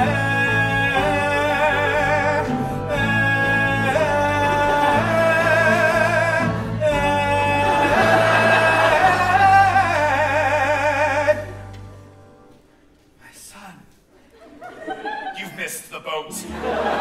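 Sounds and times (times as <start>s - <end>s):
voices singing with vibrato: 0.0s - 11.6s
instrumental backing: 0.0s - 13.2s.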